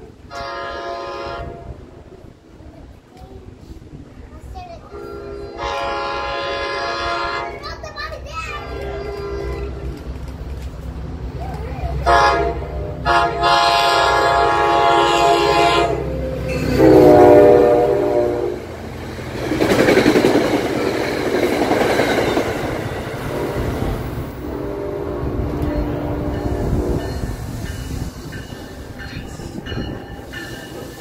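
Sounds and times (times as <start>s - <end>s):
passenger cars passing: 0.0s - 31.0s
locomotive horn blasts: 0.3s - 1.8s, 4.9s - 7.6s, 8.6s - 9.9s, 12.0s - 18.7s, 23.2s - 27.2s.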